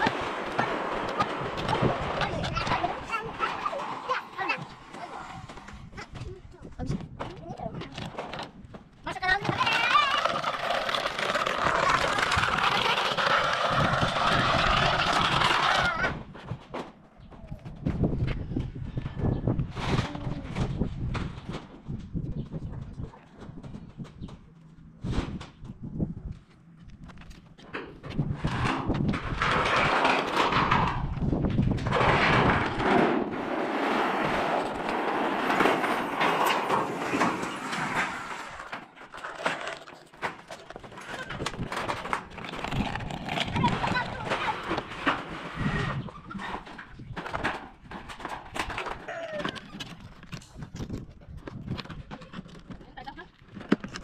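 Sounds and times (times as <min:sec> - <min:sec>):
plastic crate scraping on concrete: 0:00.0 - 0:07.1, 0:09.2 - 0:17.0, 0:28.0 - 0:51.0
metal sheets rattling and clattering: 0:28.1 - 0:49.1.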